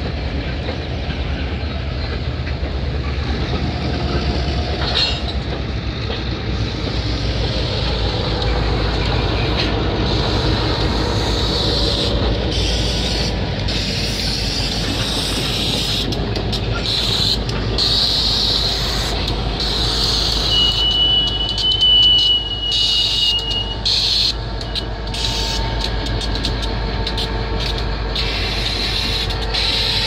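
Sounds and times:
high wheel squeal on rail: 0.0s - 30.0s
rumble of train wheels and engine: 0.0s - 30.0s.

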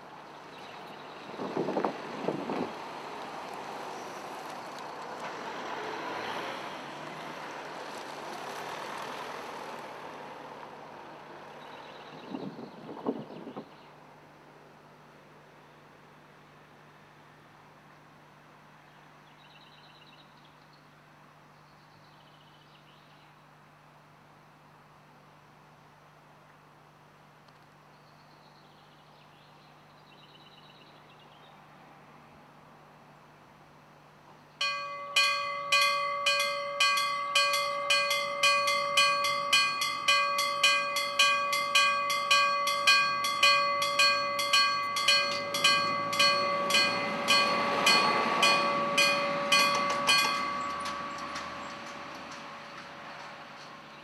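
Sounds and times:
level crossing warning bell: 34.6s - 53.5s.

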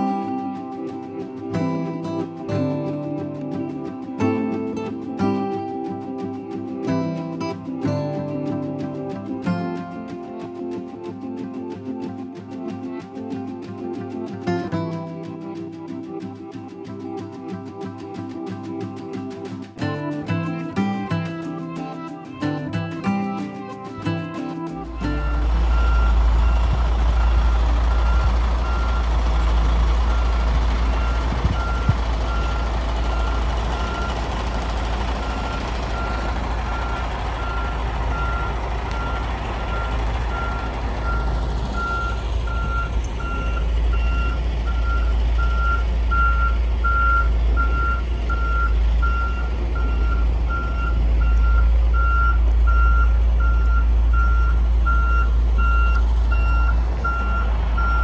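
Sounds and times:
truck low rumble: 0.0s - 12.1s, 18.3s - 58.0s
truck back-up alarm beeping: 23.9s - 58.0s.

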